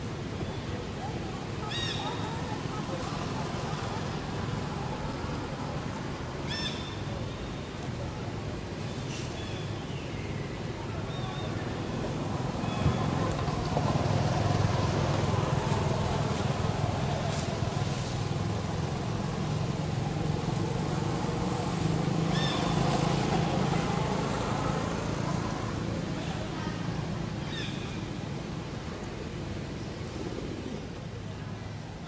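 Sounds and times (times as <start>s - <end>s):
engine humming: 11.8s - 31.3s.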